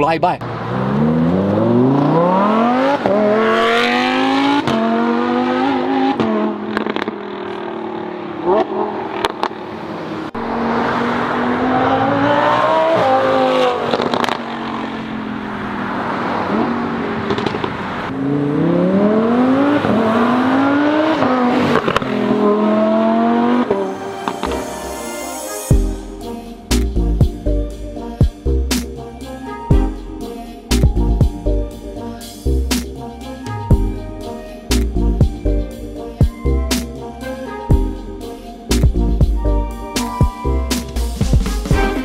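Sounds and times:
sports car accelerating past: 0.4s - 24.5s
exhaust cracks: 13.8s - 15.0s, 17.2s - 17.8s.

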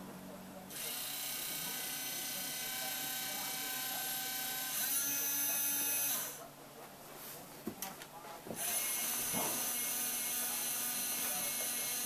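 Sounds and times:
small electric motors whining: 0.7s - 6.4s, 8.6s - 12.0s.

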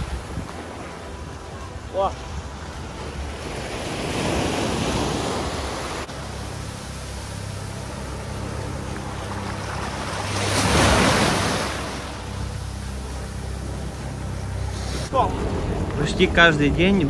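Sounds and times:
small waves washing over sand: 0.0s - 13.4s.

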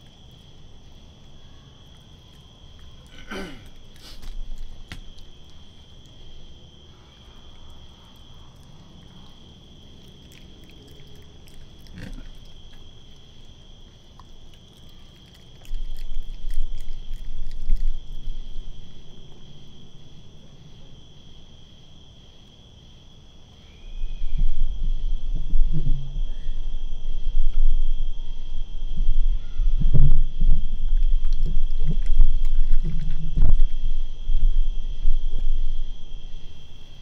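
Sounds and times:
raccoon chewing and snuffling: 0.0s - 21.4s, 30.4s - 37.0s
crickets chirring: 0.0s - 37.0s
low rumbling bumps: 24.0s - 37.0s.

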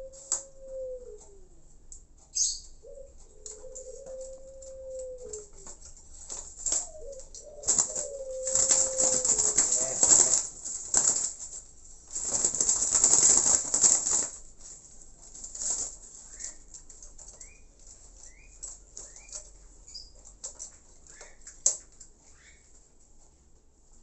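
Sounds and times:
bird wings flapping in cage: 7.6s - 14.4s.

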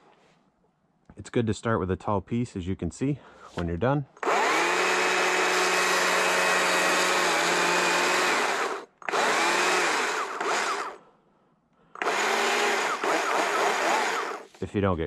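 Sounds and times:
chainsaw cutting wood: 4.2s - 11.0s, 12.0s - 14.6s.

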